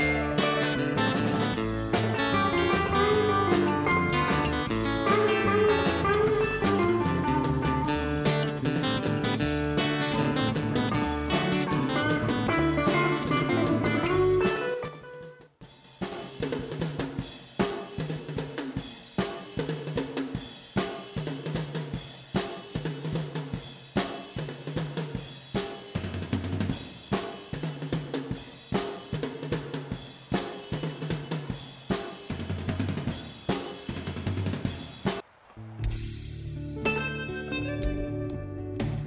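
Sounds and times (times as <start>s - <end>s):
bass line: 0.0s - 14.8s, 35.6s - 39.0s
drum kit beat: 0.0s - 35.2s, 35.8s - 39.0s.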